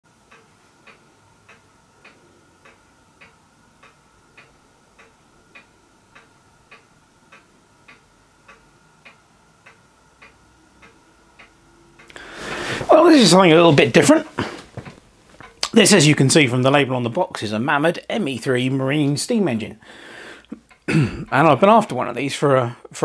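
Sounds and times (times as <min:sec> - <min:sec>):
faint mechanical ticking: 0:00.1 - 0:23.0
faint steady hum: 0:00.1 - 0:23.0.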